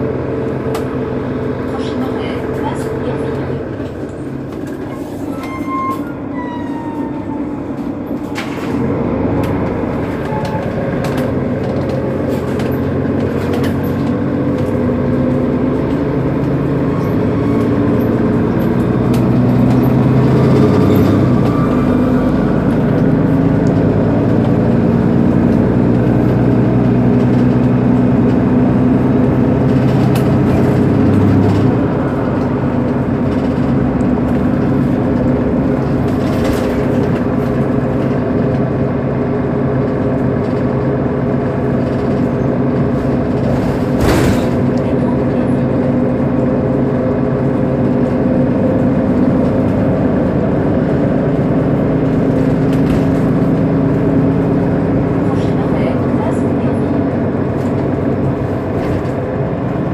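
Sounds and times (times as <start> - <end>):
bus engine running: 0.0 - 59.9.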